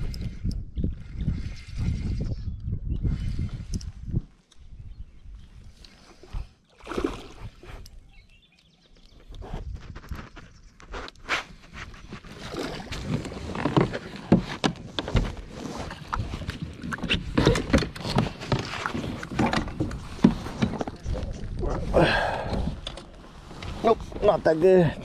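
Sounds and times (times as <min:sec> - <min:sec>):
knocks and bumps in kayak: 0:12.1 - 0:21.4.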